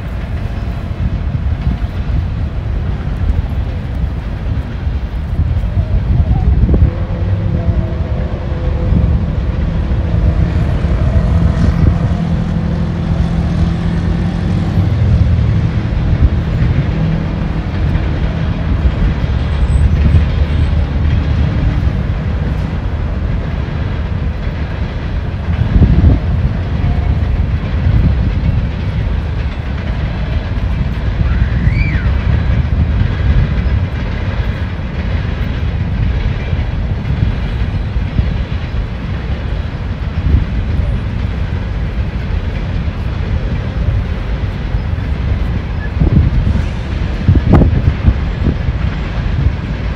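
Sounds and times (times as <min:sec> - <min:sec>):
road traffic rumble: 0:00.0 - 0:49.9
truck engine droning: 0:02.4 - 0:35.9
loud vehicle passing: 0:06.6 - 0:23.1.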